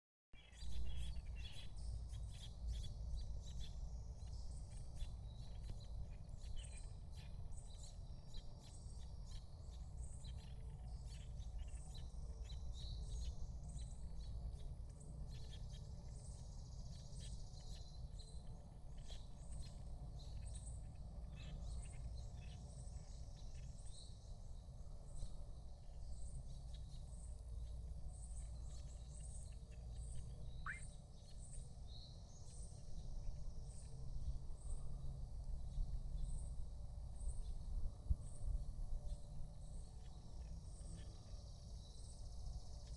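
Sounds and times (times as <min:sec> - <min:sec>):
birds chirping: 0:00.4 - 0:33.9
insect pulsing call: 0:28.4 - 0:31.4.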